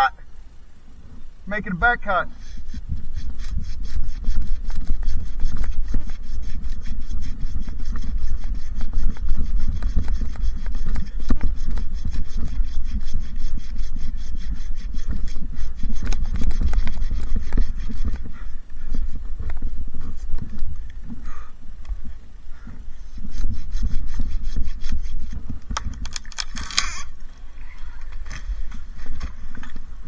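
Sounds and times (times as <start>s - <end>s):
handsaw sawing through wood: 2.3s - 19.2s, 23.2s - 25.4s.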